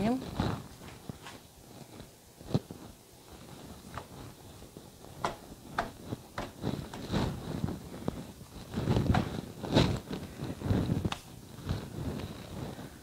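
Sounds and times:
hands patting dough on pan: 3.7s - 11.9s.

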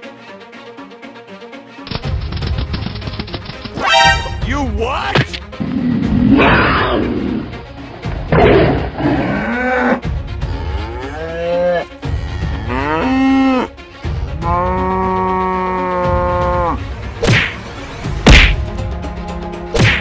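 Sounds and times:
background music: 0.0s - 20.0s
tiger roar: 5.6s - 16.8s
cows mooing: 9.0s - 16.9s.

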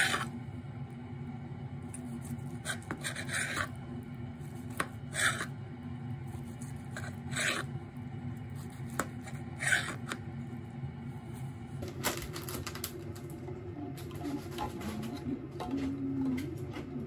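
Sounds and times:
knife scraping ceramic plate: 0.0s - 0.3s, 2.2s - 3.8s, 4.7s - 5.6s, 6.5s - 7.7s, 8.6s - 10.2s
knife slicing omelette: 4.5s - 5.6s, 6.3s - 7.7s.

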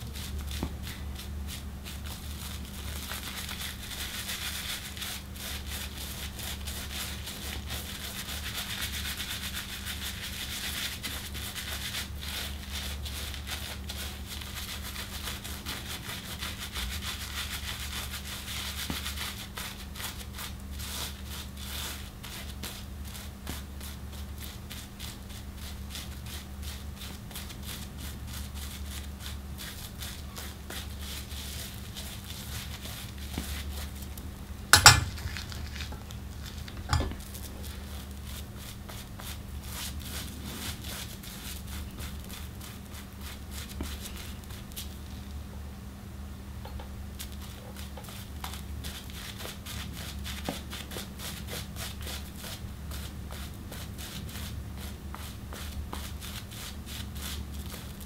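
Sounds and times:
razor scraping stubble: 34.7s - 38.7s.

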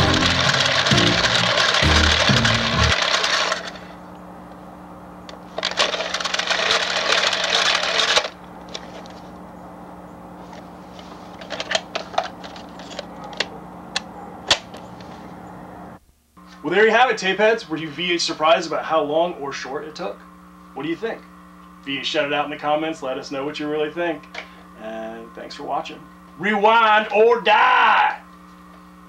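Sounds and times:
dense rattling noise: 0.0s - 3.8s
steady low hum: 0.0s - 29.0s.

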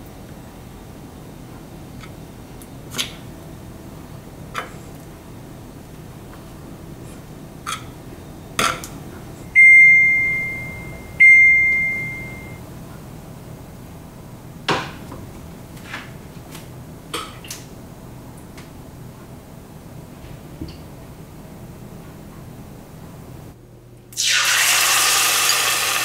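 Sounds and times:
cooktop beeps: 9.6s - 12.6s.

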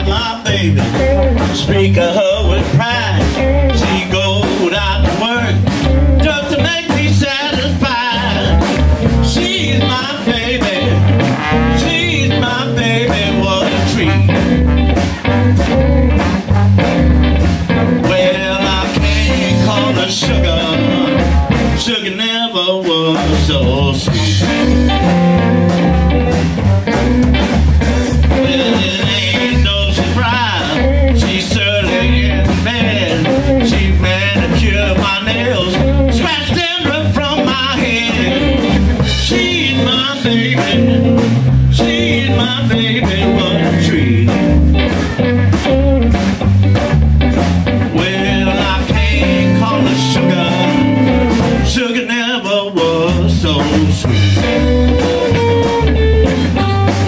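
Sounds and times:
trombone and saxophone horn lines: 0.0s - 21.9s, 23.4s - 46.5s, 47.3s - 51.9s, 53.3s - 57.0s
drum kit steady beat: 0.0s - 22.0s, 22.9s - 51.8s, 52.9s - 57.0s
electric guitars: 0.0s - 22.3s, 22.9s - 57.0s
bass: 0.0s - 57.0s
amplified harmonica: 49.3s - 51.7s, 54.5s - 57.0s.

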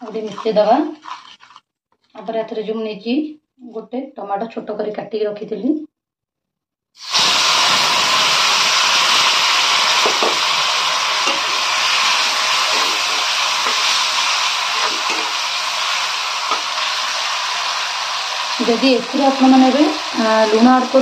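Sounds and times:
tomatoes sizzling in hot oil: 0.0s - 1.6s, 7.0s - 21.0s.

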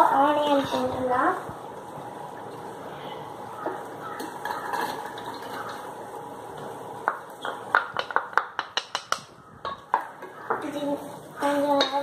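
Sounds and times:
steady low hiss: 0.0s - 12.0s
spatula knocking against bowl: 7.1s - 10.6s.

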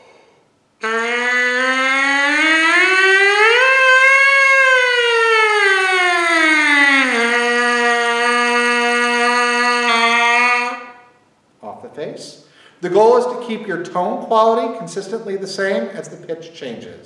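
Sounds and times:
lips buzzing into brass mouthpiece: 0.8s - 2.0s, 7.0s - 11.2s.

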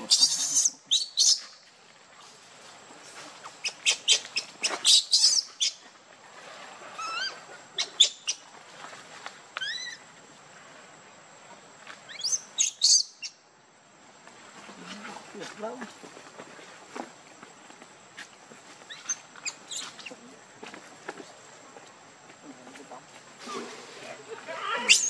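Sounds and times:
baby monkey crying: 0.1s - 1.0s.

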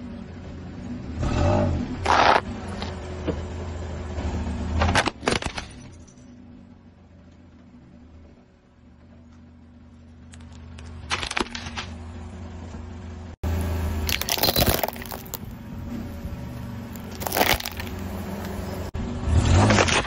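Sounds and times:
low car engine hum: 0.0s - 20.0s
plastic cracking under car tyre: 16.9s - 18.0s.

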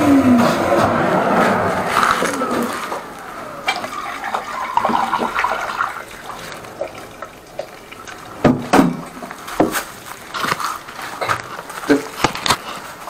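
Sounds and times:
water splashing and draining: 1.8s - 10.4s.

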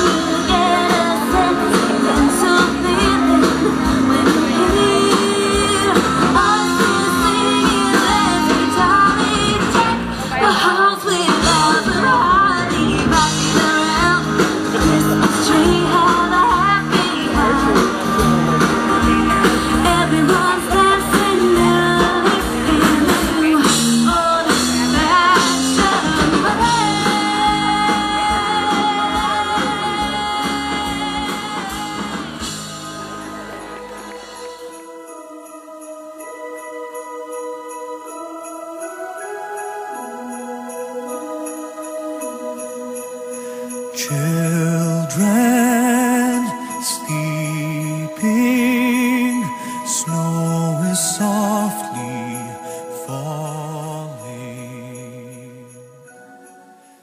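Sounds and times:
woman singing into microphone: 0.0s - 32.7s, 43.9s - 55.3s
steady drum beat: 0.0s - 34.6s
electric guitar: 0.0s - 34.8s.

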